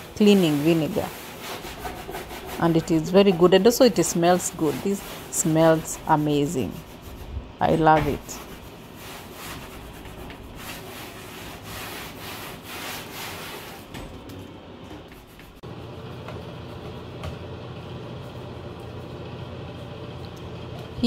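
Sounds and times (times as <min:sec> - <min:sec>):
cloth rubbing on painted wall: 0:00.0 - 0:13.9.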